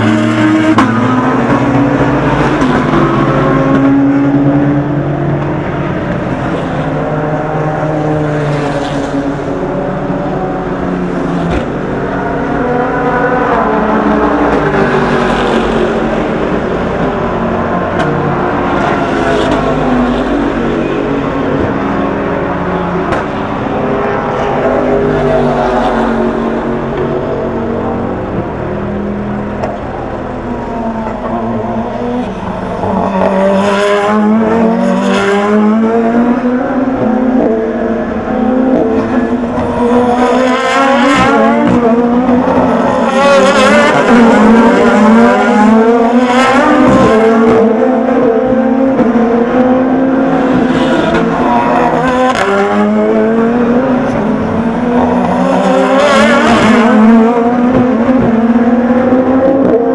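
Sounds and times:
race cars downshifting and accelerating: 0.0 - 59.9.

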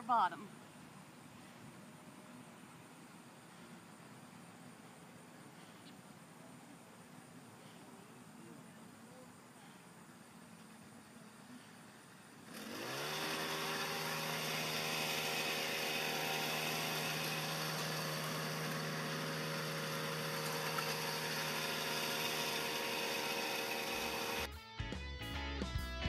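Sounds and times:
small engine running: 11.2 - 24.5.

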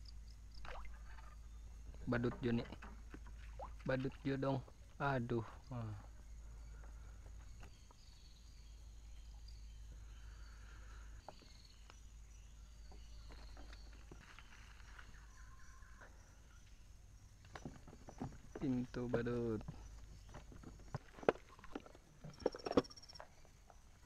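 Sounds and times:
faint chirps: 3.9 - 17.4.

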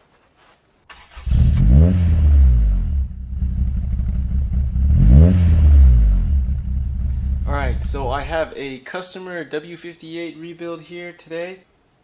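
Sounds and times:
car engine revving: 0.9 - 8.6
deep exhaust note: 1.3 - 8.7.

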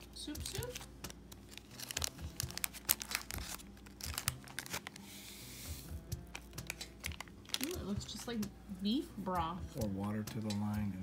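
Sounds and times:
plastic packet crinkling: 0.4 - 5.2, 6.2 - 8.1.

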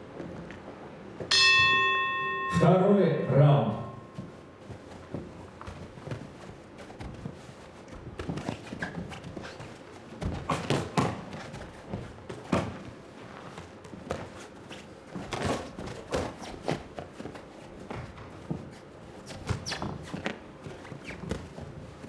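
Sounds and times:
shoes scuffing on canvas: 3.9 - 22.0
boxing gloves thudding: 10.2 - 12.8.

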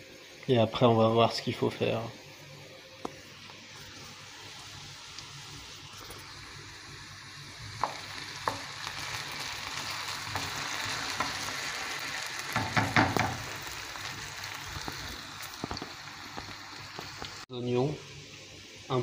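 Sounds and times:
potatoes sizzling in oil: 0.2 - 19.0
wooden spoon knocking and scraping pan: 7.8 - 8.7, 12.6 - 13.5.

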